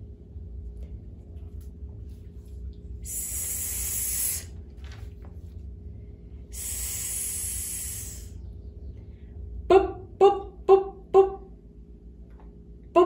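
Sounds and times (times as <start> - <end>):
voice hissing s sound: 3.0 - 4.5, 6.6 - 8.4.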